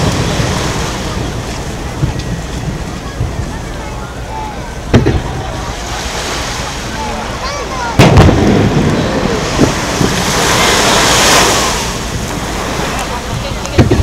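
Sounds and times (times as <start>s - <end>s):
hissing crackle: 0.0s - 7.4s, 8.0s - 14.0s
people chattering: 0.0s - 14.0s
firework boom: 4.8s - 5.7s, 7.9s - 14.0s
smaller firework bangs: 4.8s - 5.7s, 7.9s - 14.0s.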